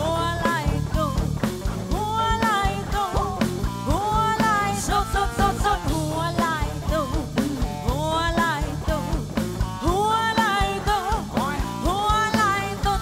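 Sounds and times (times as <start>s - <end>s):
bass guitar: 0.0s - 13.0s
drum kit: 0.0s - 13.0s
electric guitar: 0.0s - 13.0s
woman singing: 0.0s - 13.0s.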